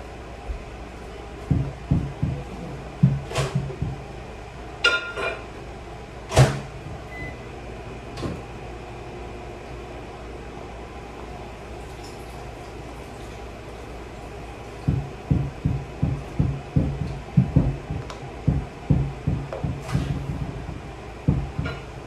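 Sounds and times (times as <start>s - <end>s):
low thumps: 1.5s - 4.1s, 14.9s - 22.0s
microwave beep: 7.1s - 7.5s.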